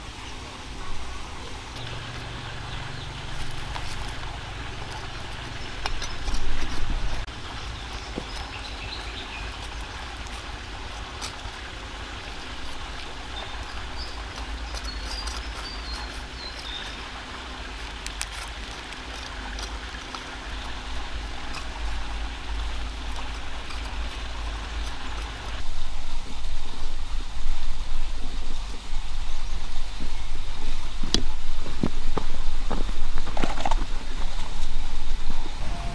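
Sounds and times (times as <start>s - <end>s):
even hiss: 0.0s - 35.9s.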